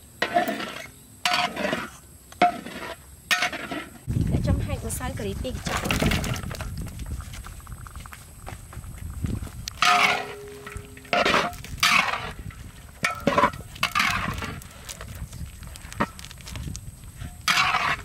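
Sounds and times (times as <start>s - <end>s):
metal spatula scraping a wok: 0.2s - 4.1s, 9.8s - 14.6s, 17.2s - 18.0s.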